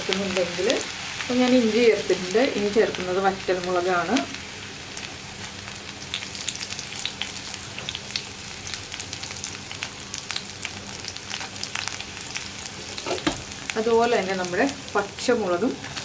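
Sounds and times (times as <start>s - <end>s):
food frying in hot oil: 0.0s - 16.0s
oil crackling and popping: 5.0s - 16.0s.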